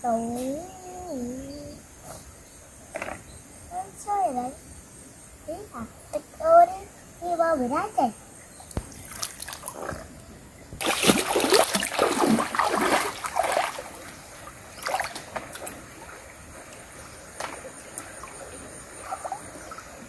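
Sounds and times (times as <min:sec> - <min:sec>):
water splashing: 0:08.7 - 0:20.0.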